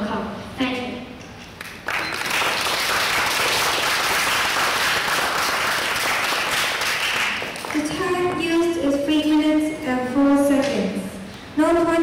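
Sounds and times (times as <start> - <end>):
audience applauding: 1.6 - 7.9.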